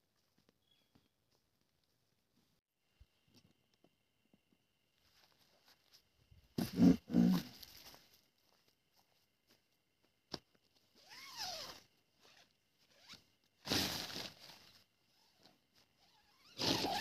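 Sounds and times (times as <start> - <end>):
tent zipper rasping: 6.6 - 7.5, 11.0 - 17.0.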